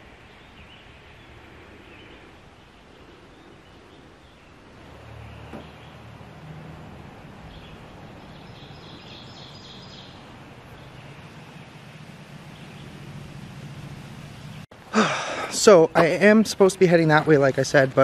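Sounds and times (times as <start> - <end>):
steady background hiss: 0.0 - 18.0.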